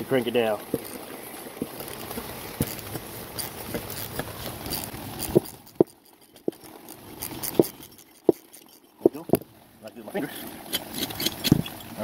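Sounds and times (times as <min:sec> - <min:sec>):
ratchet metal clicks and knocks: 0:03.4 - 0:09.4.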